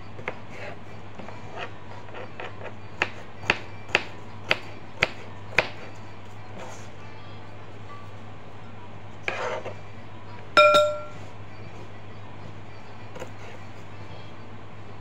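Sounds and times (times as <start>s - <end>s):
steady low hum: 6.0s - 15.0s.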